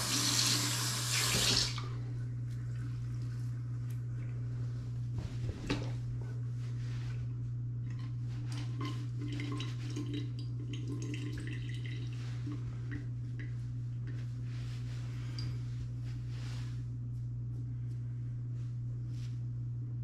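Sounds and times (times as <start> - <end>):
steady low hum: 0.0 - 20.0
water dripping: 9.2 - 12.3.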